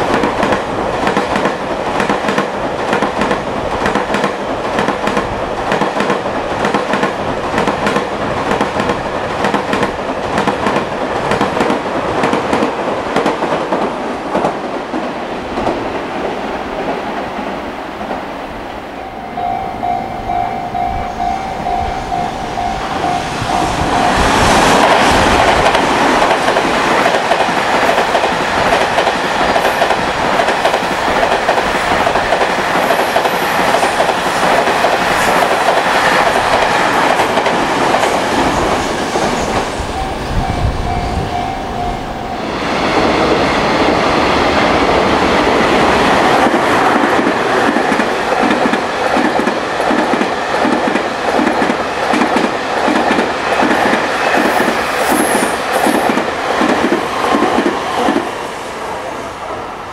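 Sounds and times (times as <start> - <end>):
freight train passing: 0.0 - 59.9
level crossing bell ringing: 18.9 - 24.2, 40.0 - 42.5.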